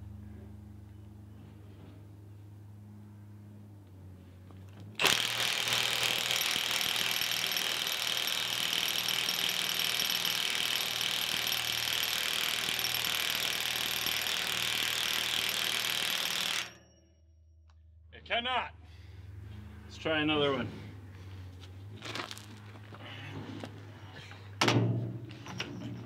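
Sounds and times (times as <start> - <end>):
impact wrench hammering: 5.0 - 16.8.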